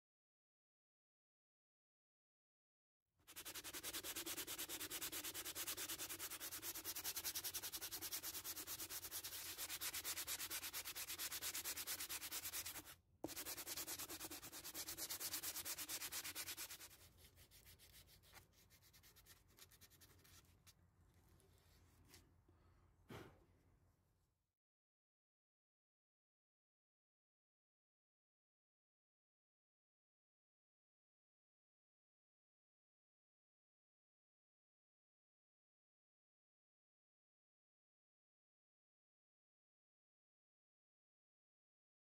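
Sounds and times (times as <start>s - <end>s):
sanding block rubbing wood: 3.3s - 20.4s.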